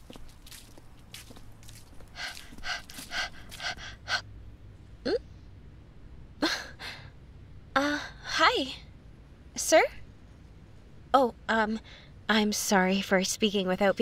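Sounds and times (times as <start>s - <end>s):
woman breathing quickly: 2.0s - 4.3s.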